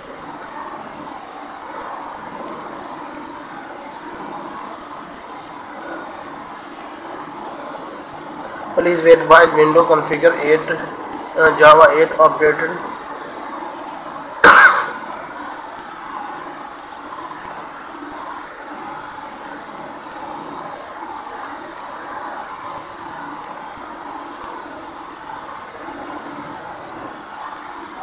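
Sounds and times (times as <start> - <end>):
steady background noise: 0.0 - 28.0
loud sharp burst: 14.4 - 15.2.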